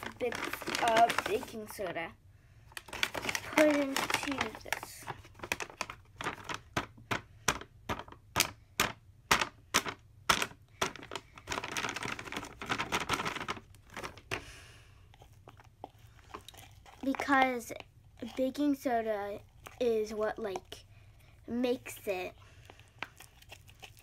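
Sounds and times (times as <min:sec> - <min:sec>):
cardboard crinkling: 0:00.0 - 0:02.0, 0:02.8 - 0:06.8, 0:09.8 - 0:14.5, 0:15.2 - 0:20.7, 0:22.5 - 0:24.0.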